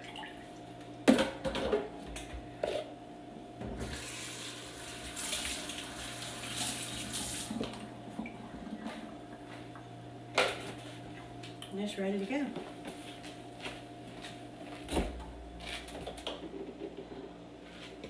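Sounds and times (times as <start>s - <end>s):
tap water running into sink: 3.8s - 8.4s.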